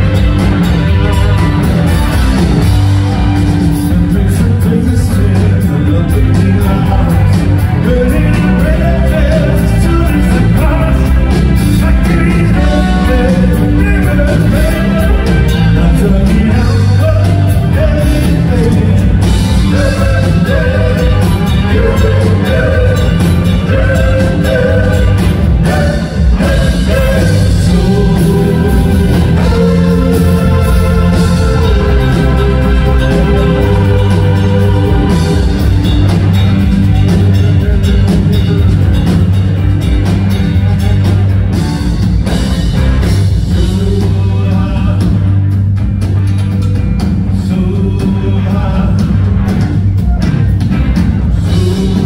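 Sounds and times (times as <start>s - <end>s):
organ: 0.0s - 49.9s
electric guitar: 0.0s - 52.0s
rock band playing: 0.0s - 52.0s
man singing: 3.6s - 35.8s, 37.1s - 38.8s, 43.5s - 45.5s, 47.4s - 49.4s, 51.4s - 52.0s.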